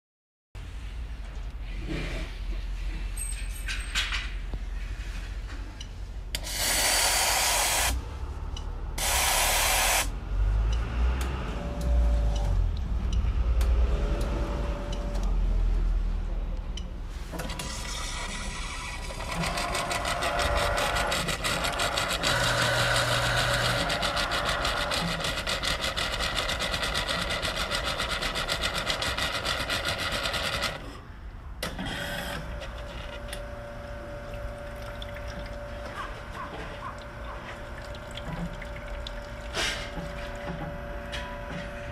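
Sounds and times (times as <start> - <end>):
espresso machine pumping and spraying: 6.4 - 8.0, 9.0 - 10.1, 17.8 - 30.6.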